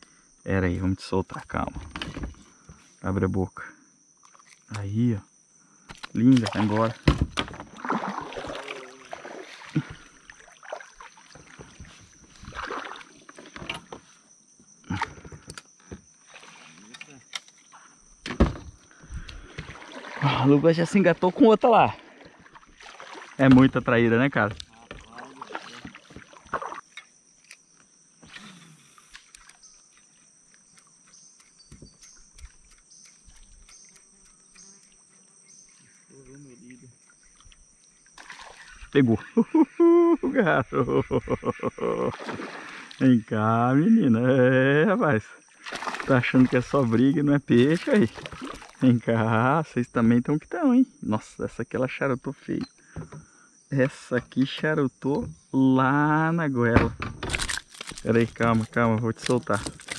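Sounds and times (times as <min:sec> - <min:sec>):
insects trilling: 0:00.0 - 0:59.9
water lapping at kayak hull: 0:06.1 - 0:27.0, 0:32.4 - 0:43.1, 0:45.4 - 0:49.1
fish thrashing splashes: 0:06.4 - 0:11.8, 0:12.4 - 0:13.2, 0:19.4 - 0:20.4, 0:22.0 - 0:23.7, 0:38.2 - 0:38.7, 0:42.1 - 0:43.0, 0:45.6 - 0:48.8, 0:57.3 - 0:59.9
light knocks on hull: 0:07.0 - 0:07.7.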